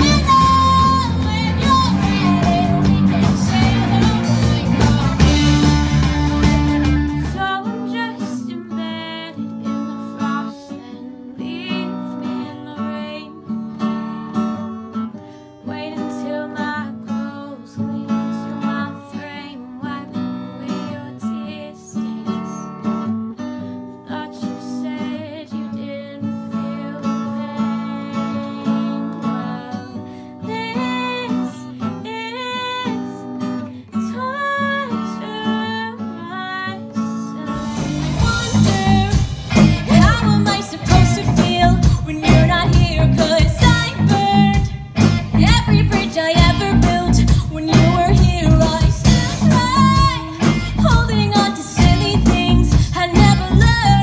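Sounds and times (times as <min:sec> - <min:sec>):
live rock band: 0:00.0 - 0:07.6, 0:37.4 - 0:54.0
female lead singer: 0:00.0 - 0:14.6, 0:15.6 - 0:22.9, 0:23.9 - 0:54.0
woman singing: 0:00.0 - 0:23.1, 0:23.9 - 0:54.0
strummed acoustic guitar: 0:00.0 - 0:54.0.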